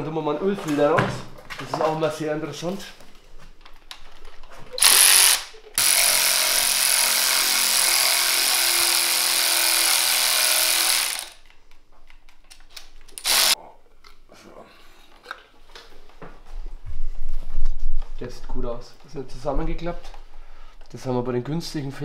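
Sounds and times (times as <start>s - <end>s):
cordless drill whirring: 4.8s - 11.4s, 13.2s - 13.6s.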